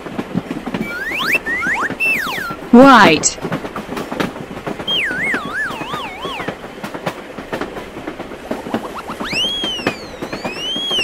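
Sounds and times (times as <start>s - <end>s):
cartoon train clattering: 0.0s - 11.0s
whistle-like sliding tones: 0.8s - 2.6s, 4.8s - 6.6s, 8.5s - 11.0s.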